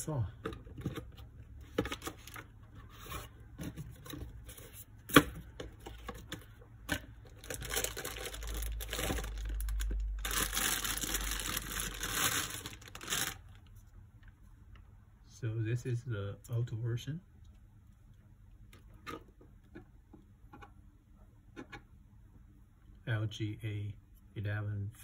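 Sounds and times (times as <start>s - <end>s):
plastic bag crinkling: 7.2s - 13.7s.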